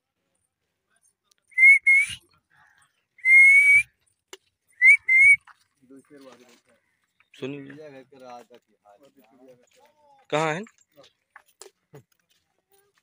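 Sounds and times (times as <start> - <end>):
person whistling: 1.6 - 2.2, 3.2 - 3.9, 4.8 - 5.4.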